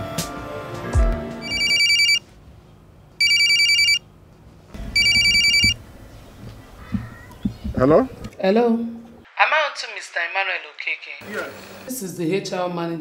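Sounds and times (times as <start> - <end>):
trilling phone ringtone: 1.4 - 2.2, 3.2 - 4.0, 5.0 - 5.8.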